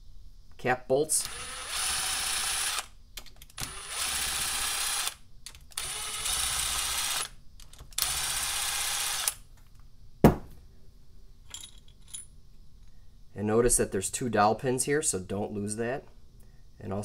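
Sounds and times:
sharp knock: 10.2s - 10.6s.

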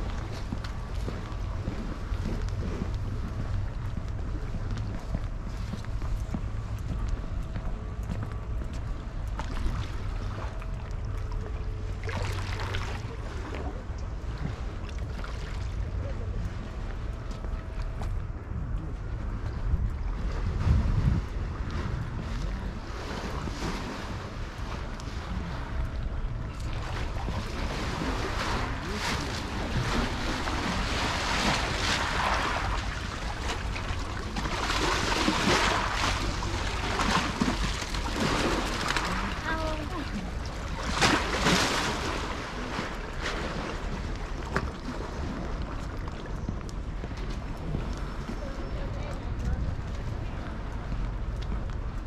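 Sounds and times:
boat engine rumbling: 0.0s - 52.0s
lake water lapping: 9.0s - 17.7s, 20.4s - 50.7s.

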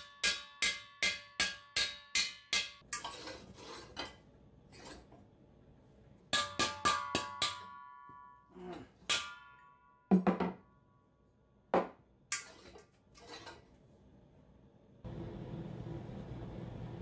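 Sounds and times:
low hum: 15.0s - 17.0s.

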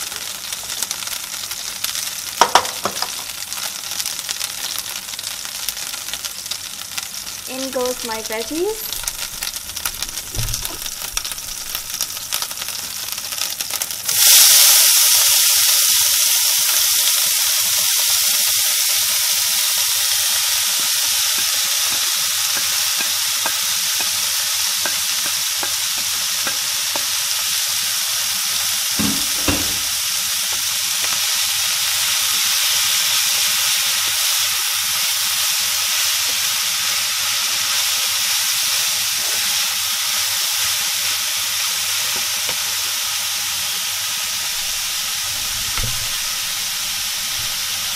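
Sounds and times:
vegetables sizzling in hot oil: 0.0s - 47.9s.

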